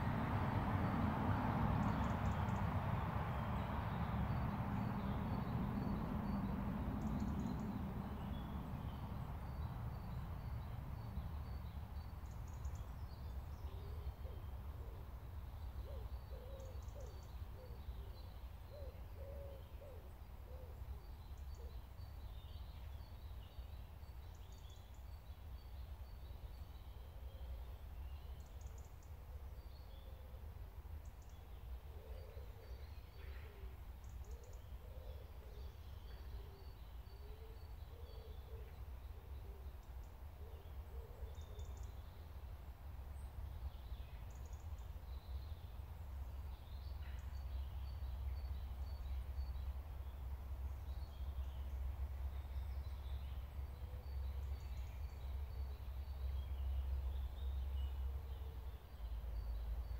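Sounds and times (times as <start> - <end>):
low steady rumble: 0.0 - 13.6
bird hooting or cooing: 18.8 - 20.8, 40.4 - 41.6.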